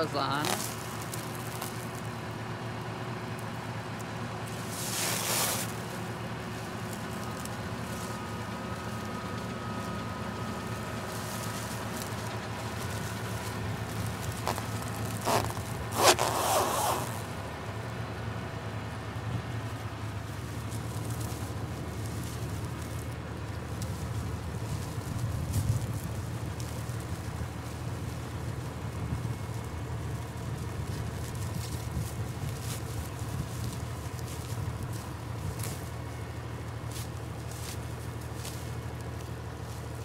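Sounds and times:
tractor diesel engine idling: 0.0 - 16.0, 17.1 - 40.0
plastic film crinkling: 0.4 - 2.1, 10.6 - 17.3, 20.4 - 40.0.

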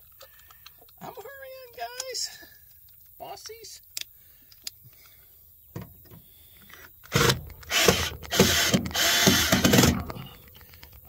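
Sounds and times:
power drill driving screw: 7.1 - 10.3.

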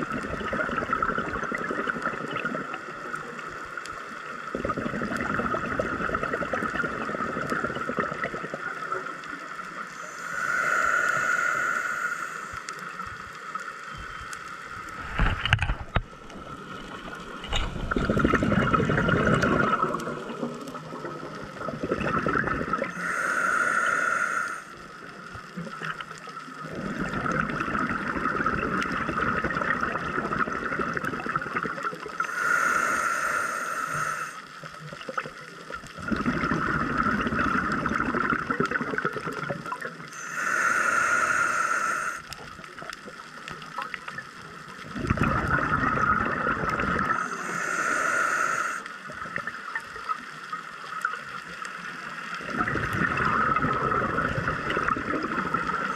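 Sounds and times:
diver breathing through regulator: 9.9 - 12.8, 22.9 - 24.8, 32.2 - 34.5, 40.1 - 42.4, 47.0 - 49.0
bubbling exhaust: 17.8 - 20.4, 21.6 - 23.5, 36.0 - 39.5, 44.9 - 48.8, 52.4 - 55.9.

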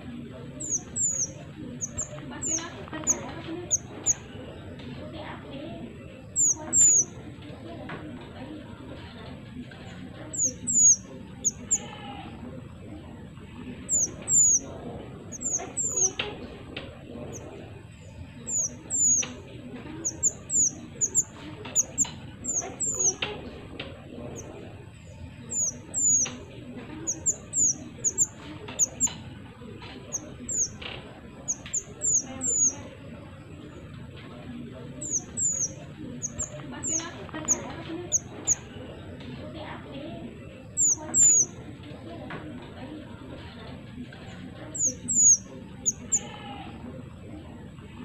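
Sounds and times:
songbird chirping: 0.0 - 48.0.

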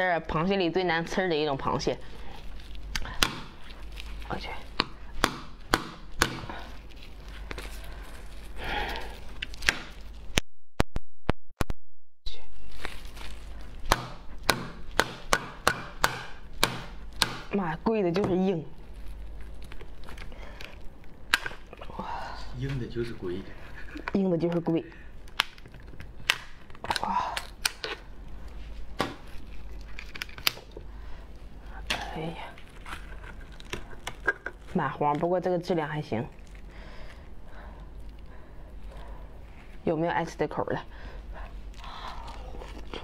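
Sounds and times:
crab shell cracking: 2.4 - 10.4, 18.8 - 21.9, 24.0 - 30.9, 31.8 - 35.3, 41.7 - 43.0
scissors cracking crab shell: 19.7 - 21.8, 24.0 - 28.0, 29.5 - 30.8.

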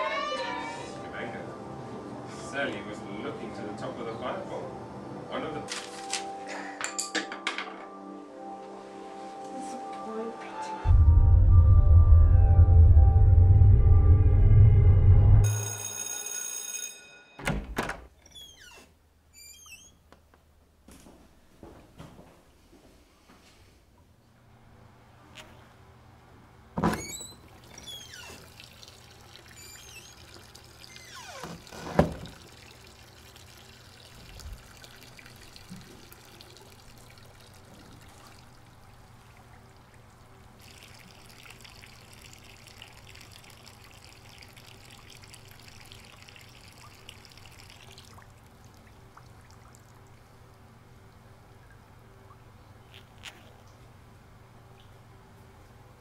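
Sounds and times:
urine splashing into a urinal: 27.0 - 39.6, 40.6 - 50.0.

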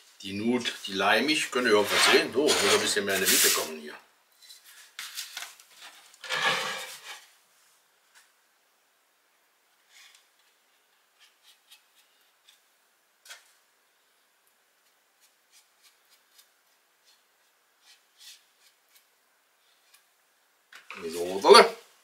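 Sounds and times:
wood rubbing and rustling: 4.6 - 7.3.

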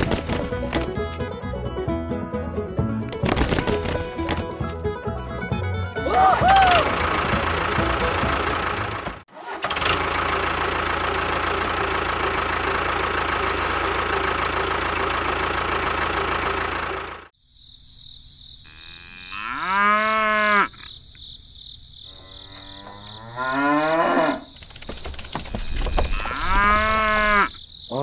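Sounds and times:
cow mooing: 18.7 - 20.8, 22.1 - 24.5, 26.1 - 27.6.

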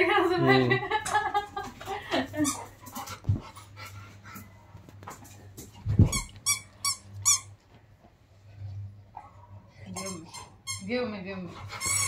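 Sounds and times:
dog whining squeals: 9.9 - 10.9.

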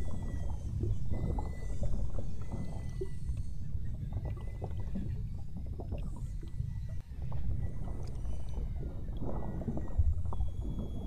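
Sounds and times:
boat engine rumble: 0.0 - 11.0
whale whistles: 0.0 - 11.0.

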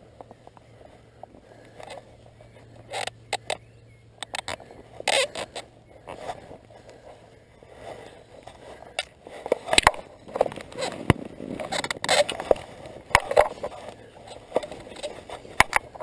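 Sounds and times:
sharp clicks and knocks: 9.0 - 16.0.

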